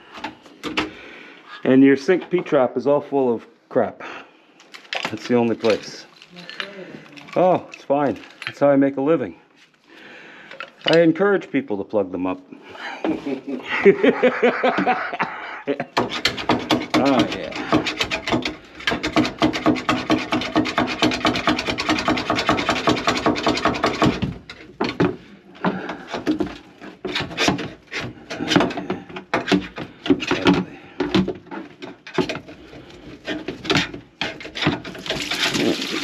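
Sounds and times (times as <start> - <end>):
scraping and scrubbing sink drain: 16.0 - 36.0.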